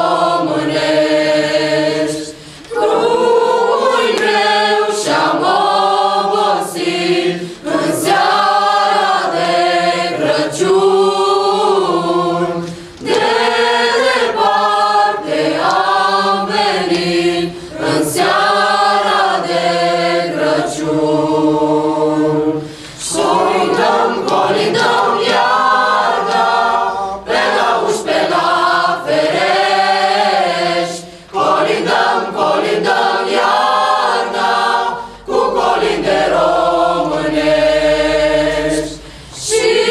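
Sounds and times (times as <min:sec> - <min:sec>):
choir singing a cappella: 0:00.0 - 0:39.9.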